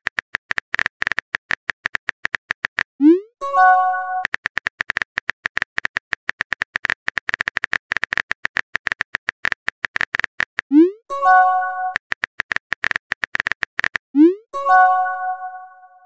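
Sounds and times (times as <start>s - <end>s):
keyboard typing clicks: 0.0s - 15.7s
chiming message tone: 11.1s - 12.0s, 14.3s - 16.0s.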